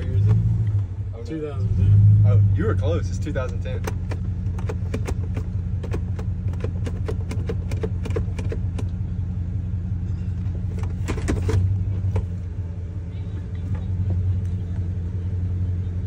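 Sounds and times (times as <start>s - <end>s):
pickup engine idling: 0.0s - 16.0s
sharp clicks: 3.5s - 9.0s.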